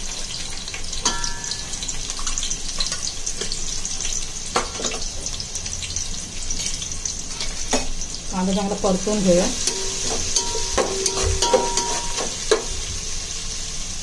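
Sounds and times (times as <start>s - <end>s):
onion sizzling in hot oil: 0.0s - 14.0s
metal spoon knocking on a pot: 1.0s - 1.7s, 9.6s - 12.7s.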